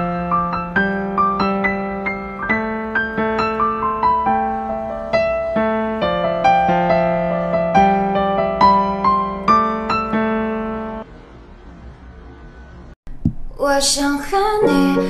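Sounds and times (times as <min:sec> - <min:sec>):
gentle piano melody: 0:00.0 - 0:11.1, 0:14.5 - 0:15.0.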